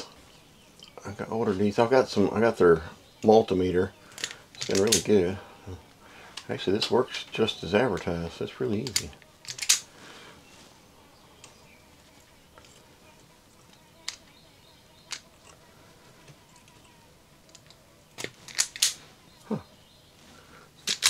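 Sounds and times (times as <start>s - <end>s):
sharp snaps: 17.5s - 19.1s, 20.8s - 21.0s.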